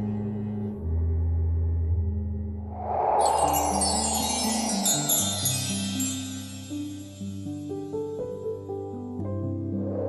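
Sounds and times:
high glittering chime shimmer: 3.0 - 7.8.

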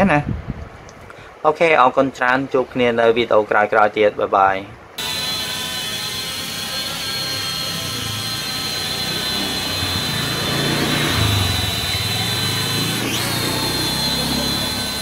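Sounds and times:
toy drone high-pitched whine: 5.0 - 15.0.

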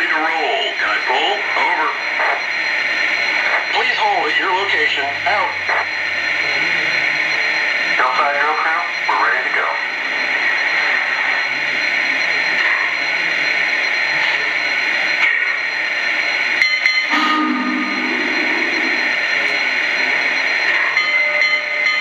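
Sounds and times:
low pitched tone: 17.1 - 19.8.

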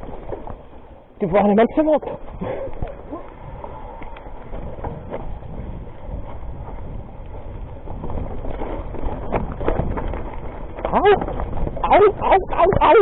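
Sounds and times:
mountain bike rattling: 0.0 - 13.0
wind on microphone: 2.1 - 13.0
bike knocking on rocks: 3.6 - 13.0.

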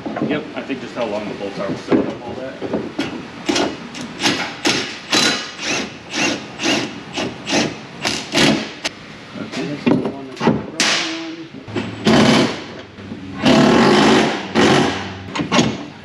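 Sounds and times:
ratchet wrench rasping: 3.4 - 8.6.

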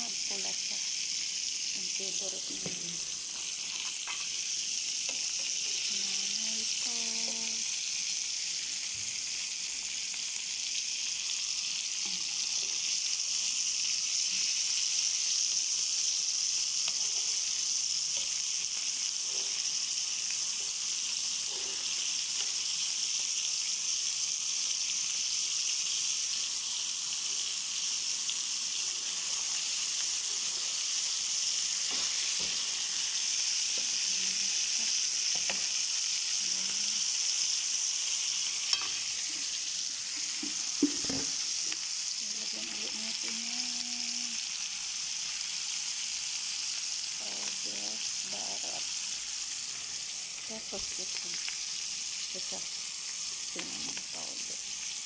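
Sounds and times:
meat sizzling in oil: 0.0 - 55.0
spatula scraping pan: 3.6 - 4.4, 38.5 - 39.6.

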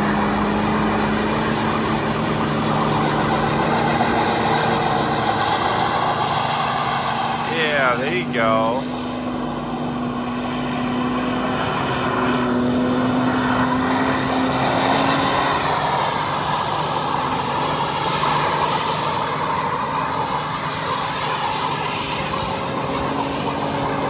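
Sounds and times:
diesel engine at high revs: 0.0 - 24.0.

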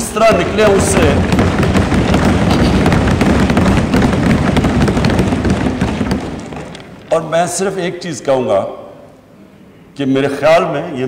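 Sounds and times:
people thumping desks: 0.0 - 7.4.

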